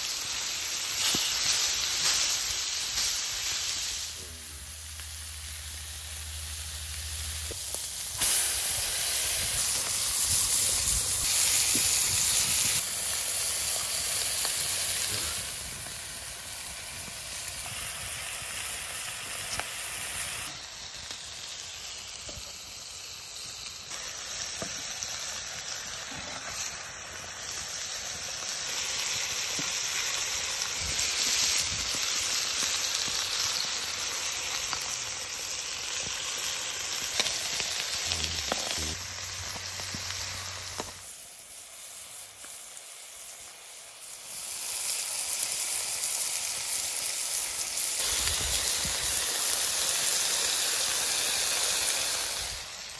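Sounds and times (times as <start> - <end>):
food sizzling on hot slab: 0.0 - 52.9.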